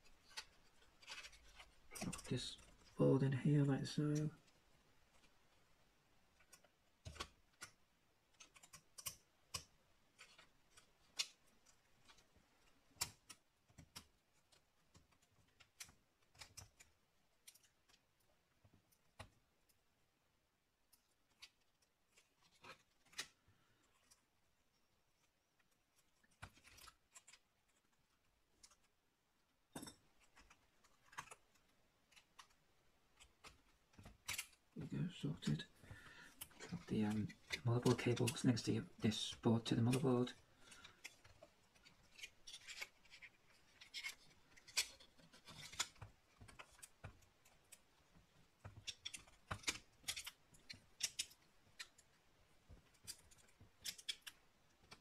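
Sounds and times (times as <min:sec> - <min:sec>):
small clicks of laptop parts: 0:00.0 - 0:03.0, 0:06.4 - 0:19.8, 0:20.9 - 0:24.3, 0:25.2 - 0:28.0, 0:29.7 - 0:34.6, 0:39.8 - 0:55.0.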